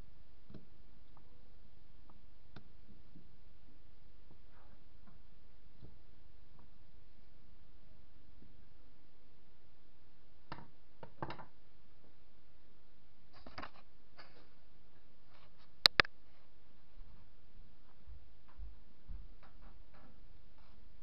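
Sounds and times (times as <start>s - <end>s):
small parts tapping and clicking: 10.5s - 11.5s
sharp clicks: 15.8s - 16.1s.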